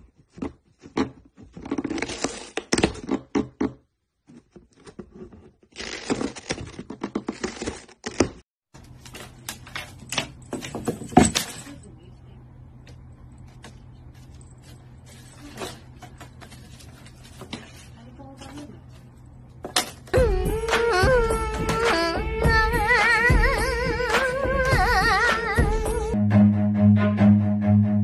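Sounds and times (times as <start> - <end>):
low steady hum: 8.8 - 26.2.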